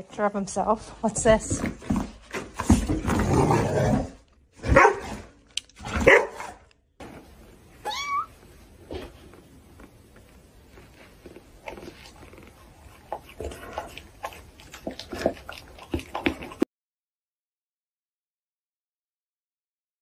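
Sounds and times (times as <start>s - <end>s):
faint scuffling of animals wrestling: 0.0s - 16.6s
dog barking: 4.6s - 5.2s, 5.9s - 6.6s.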